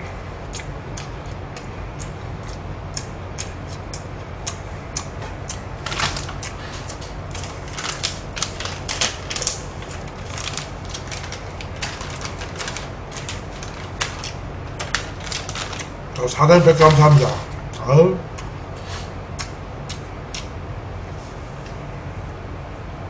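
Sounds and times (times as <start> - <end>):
steady low hum: 0.0 - 23.0
chewing food: 0.5 - 15.9
plastic glove crinkling and clicking: 5.8 - 17.4.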